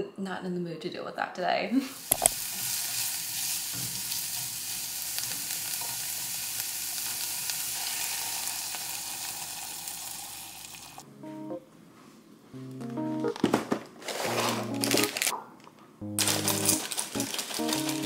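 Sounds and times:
vegetables sizzling in a frying pan: 1.9s - 11.0s, 16.2s - 18.0s.

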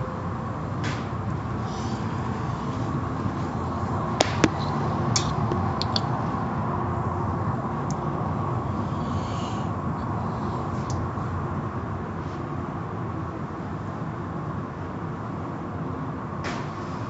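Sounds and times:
car wash machinery: 0.0s - 8.9s.

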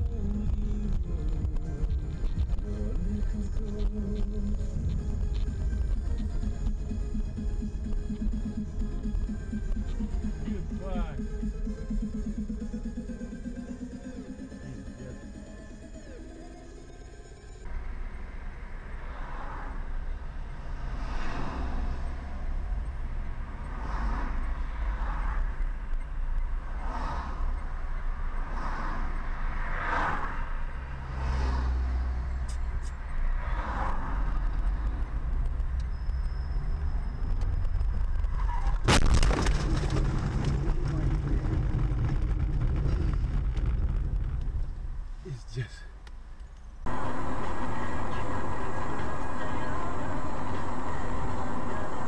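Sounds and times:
engine and road rumble: 0.0s - 52.0s
loud collision impact: 38.8s - 44.4s.

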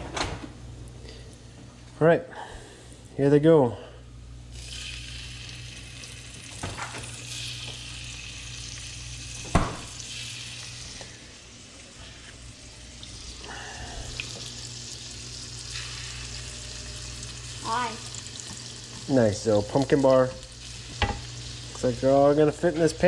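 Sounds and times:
meat sizzling in butter: 4.5s - 22.6s.

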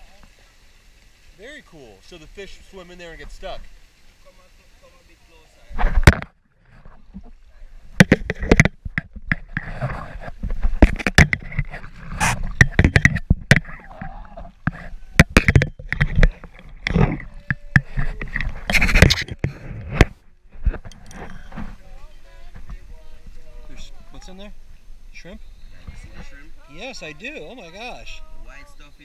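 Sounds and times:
river water splashing: 0.0s - 19.5s, 20.6s - 29.0s
knocks and scrapes: 5.7s - 21.9s.

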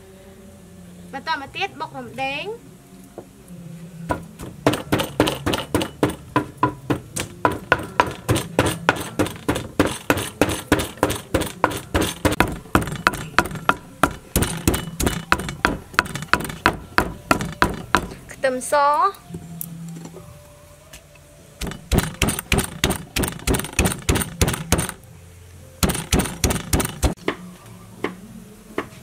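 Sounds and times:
pestle pounding in clay mortar: 4.1s - 18.2s, 21.6s - 25.0s, 25.8s - 27.2s.

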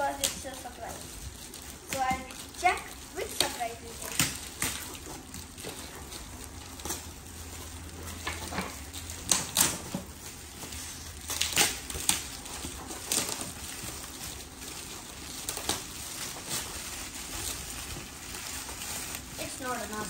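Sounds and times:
wrapping paper tearing and crumpling: 0.0s - 20.0s.

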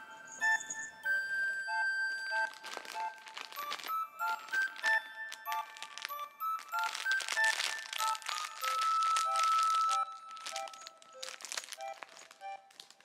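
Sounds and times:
melodic background music: 0.0s - 13.0s
plastic bag crinkling: 2.3s - 13.0s.

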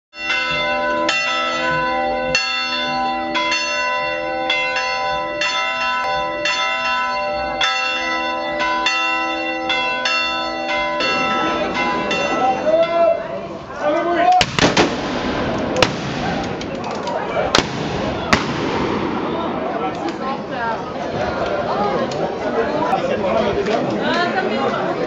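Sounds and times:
church bells ringing: 0.2s - 13.4s.

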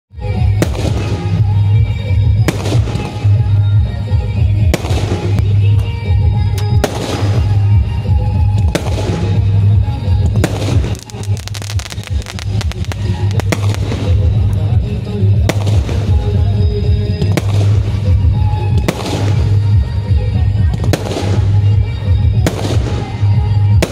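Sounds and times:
music with heavy bass: 0.2s - 23.9s
fireworks bangs: 2.4s - 3.4s, 4.6s - 5.6s, 6.8s - 19.8s, 20.8s - 23.9s
rapid crackling pops: 10.4s - 14.3s.

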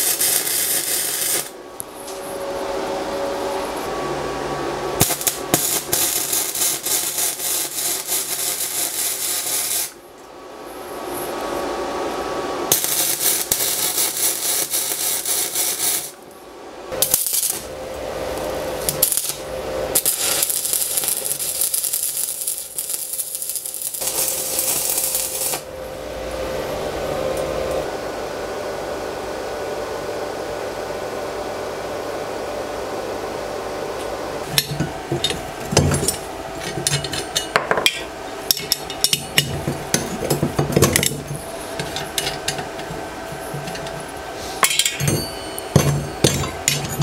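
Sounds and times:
welding arc crackling and hissing: 0.0s - 2.4s, 4.9s - 11.7s, 12.6s - 16.3s, 16.9s - 25.8s
metal clinks and knocks: 44.6s - 47.0s.

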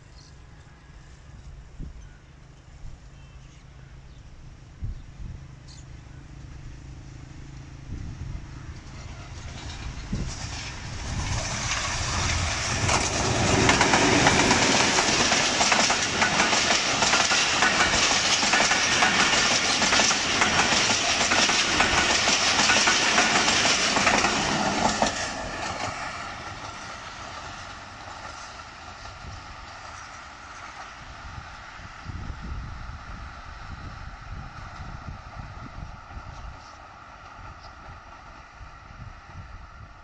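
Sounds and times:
diesel locomotive passing: 0.0s - 40.0s
train wheels clattering over rail joints: 8.9s - 31.0s.

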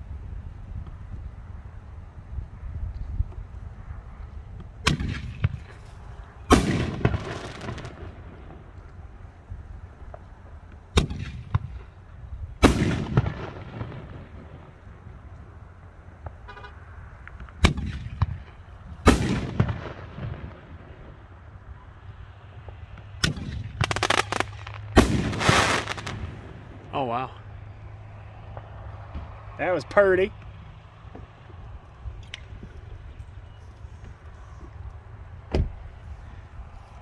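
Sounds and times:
firework aerial break: 23.2s - 27.2s.

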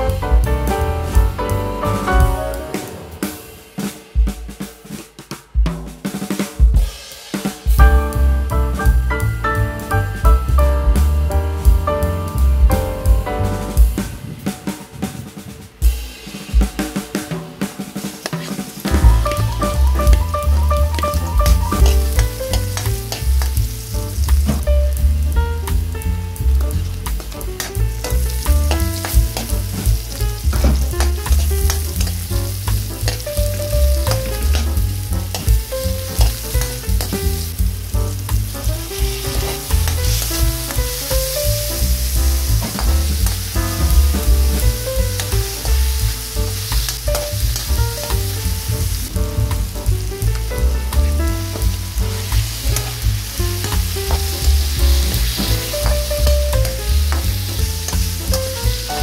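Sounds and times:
food sizzling in hot oil: 17.9s - 59.0s
spatula scraping a wok: 18.0s - 19.1s.

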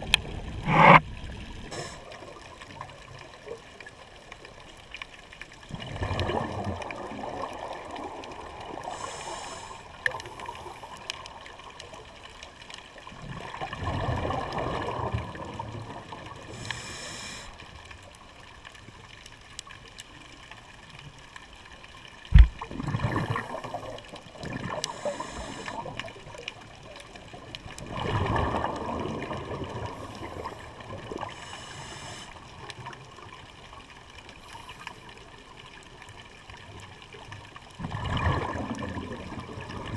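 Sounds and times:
exhaled bubbles rushing: 0.0s - 2.6s, 5.7s - 8.9s, 13.2s - 16.6s, 22.3s - 31.3s, 37.8s - 39.9s
regulator inhalation hiss: 1.7s - 2.1s, 8.9s - 9.9s, 16.5s - 17.6s, 24.9s - 25.8s, 31.4s - 32.3s.

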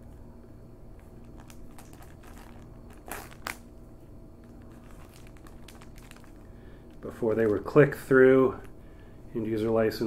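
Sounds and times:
plastic shrink wrap crinkling: 1.0s - 3.7s, 4.4s - 8.7s.

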